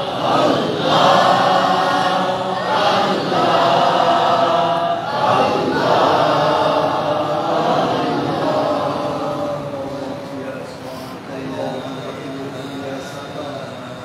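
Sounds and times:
voices chanting in unison: 0:00.0 - 0:10.6.

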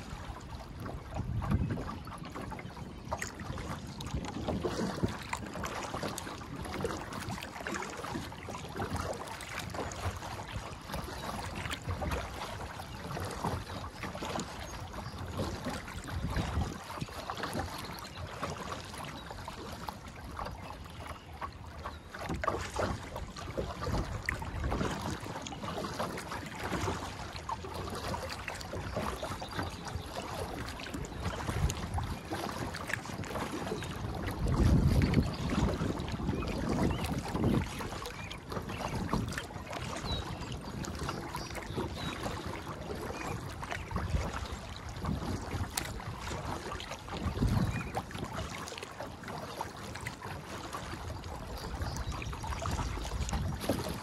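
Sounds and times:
wind buffeting microphone: 0:00.0 - 0:07.4, 0:15.4 - 0:17.6, 0:30.9 - 0:48.5, 0:51.7 - 0:54.0
paddle splashing: 0:00.0 - 0:54.0
water slapping against hull: 0:00.0 - 0:54.0.

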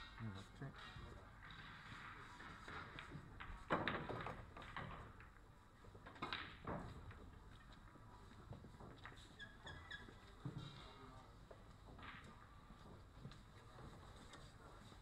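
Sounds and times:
pool balls clacking: 0:01.7 - 0:07.5.

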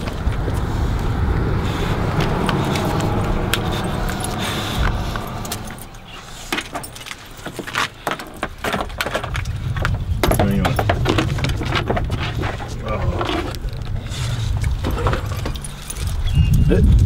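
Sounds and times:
low steady rumble: 0:00.0 - 0:07.5
leash clips jingling and clicking: 0:02.0 - 0:12.8, 0:14.6 - 0:17.0.

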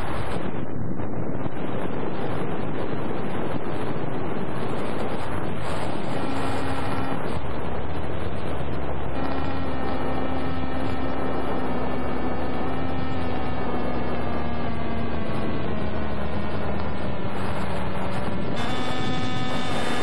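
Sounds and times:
electric motor and propeller hum: 0:00.0 - 0:20.0.

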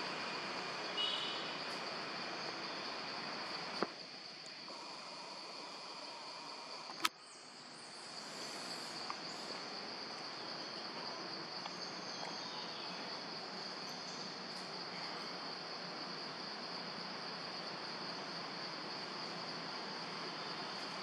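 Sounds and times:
high-pitched insect drone: 0:00.0 - 0:03.8, 0:04.6 - 0:21.0
sharp click: 0:06.9 - 0:07.2.

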